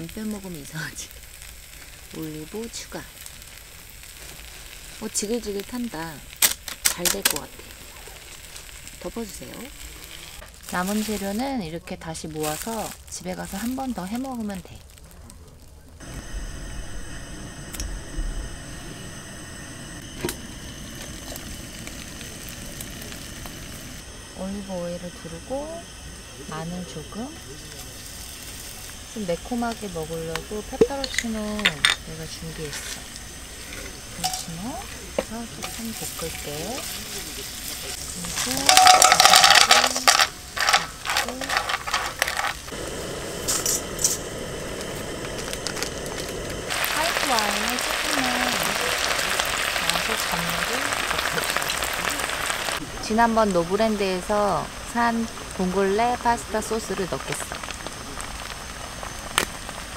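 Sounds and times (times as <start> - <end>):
food sizzling in a frying pan: 0.0 - 59.9
clinks in a frying pan: 34.2 - 34.6, 38.4 - 41.0.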